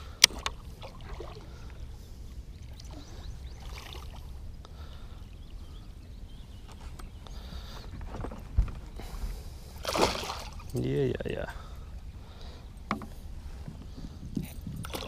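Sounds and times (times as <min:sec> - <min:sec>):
fish splashing in water: 0:09.8 - 0:10.7.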